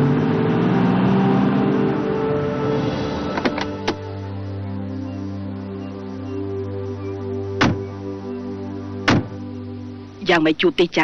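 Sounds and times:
background music with held tones: 0.0s - 11.0s
car door slam: 7.6s - 7.8s, 9.0s - 9.4s.

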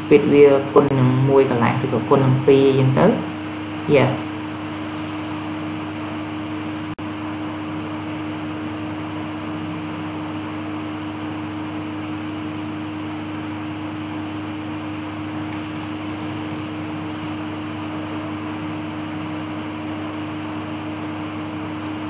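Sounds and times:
computer fan hum and hiss: 0.7s - 6.9s, 15.4s - 17.6s
quick clicks: 5.0s - 5.5s, 15.5s - 17.4s.

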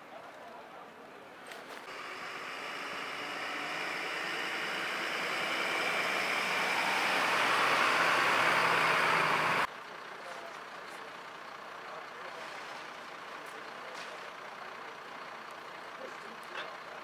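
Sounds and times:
tyres hissing on wet road: 1.9s - 9.7s
diesel engine running: 1.9s - 17.0s.

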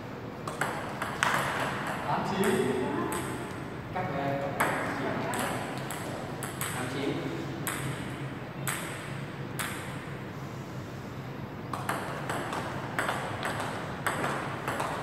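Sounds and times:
table tennis ball clicking: 0.5s - 3.6s, 4.6s - 7.0s, 11.7s - 15.0s.

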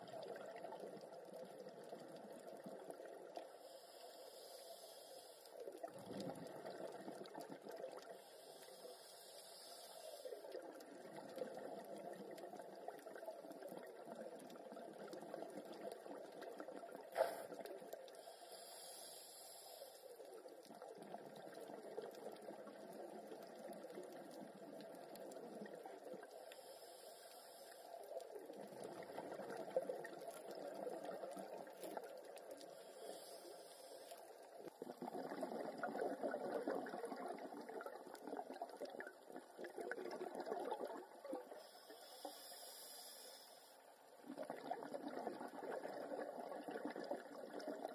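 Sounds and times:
diver breathing through regulator: 3.6s - 5.6s, 8.1s - 10.5s, 18.2s - 20.1s, 26.4s - 28.0s, 32.6s - 34.3s, 41.6s - 43.8s.

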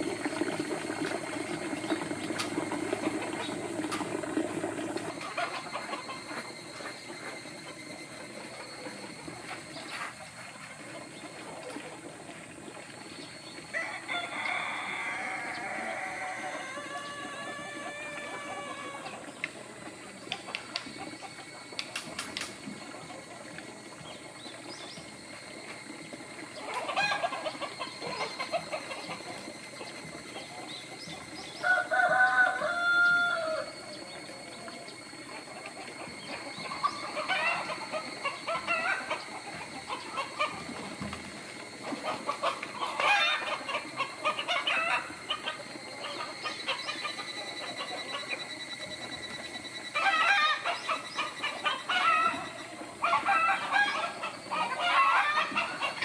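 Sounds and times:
chickens clucking and cackling: 0.0s - 56.0s
rooster crowing: 13.7s - 19.2s, 31.6s - 33.8s.

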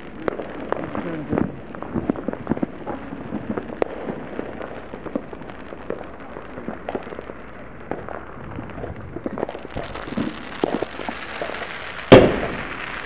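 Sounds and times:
distant fireworks bangs and crackles: 0.0s - 13.0s
faint falling whistle: 0.4s - 1.8s, 5.9s - 7.2s.

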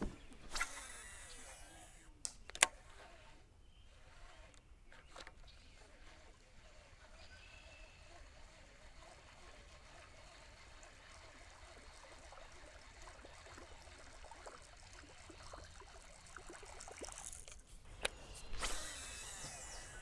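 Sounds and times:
water trickling and lapping: 2.8s - 17.8s
lure splashing on water surface: 11.7s - 17.6s.

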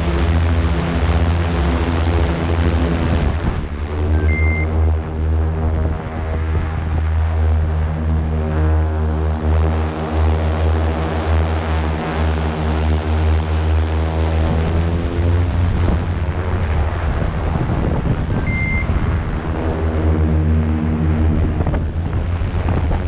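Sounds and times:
drone propellers humming: 0.0s - 23.0s
short high beep: 4.2s - 4.8s, 18.4s - 19.0s.

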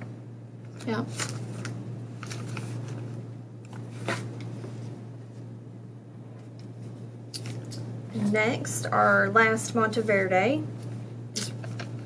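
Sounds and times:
steady low hum: 0.0s - 12.0s
paper cards rustling and tapping: 11.4s - 12.0s.

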